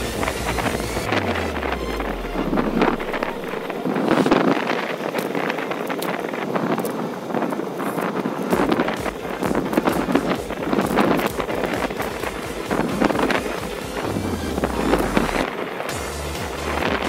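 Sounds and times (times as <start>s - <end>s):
low rumble: 0.0s - 6.3s, 8.5s - 17.0s
wind buffeting microphone: 0.0s - 17.0s
bicycle clicks and rattles: 3.6s - 14.1s.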